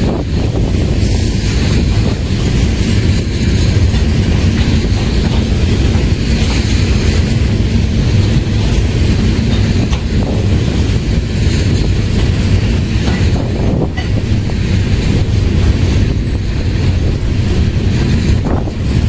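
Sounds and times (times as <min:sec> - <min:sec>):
freight train rolling past: 0:00.0 - 0:19.0.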